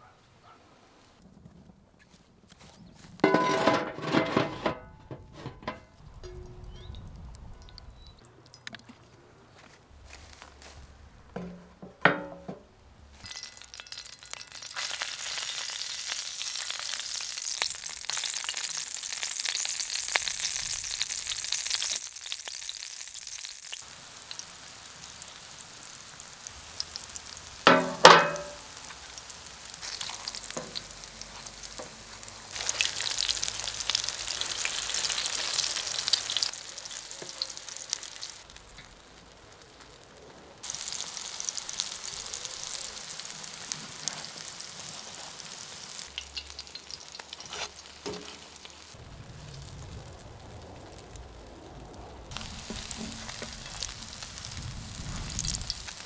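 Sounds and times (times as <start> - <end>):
pan clatter: 3.2 - 6.9, 11.4 - 12.6, 13.2 - 15.2, 27.7 - 28.7
pancakes sizzling in oil: 13.1 - 51.4, 52.2 - 56.0.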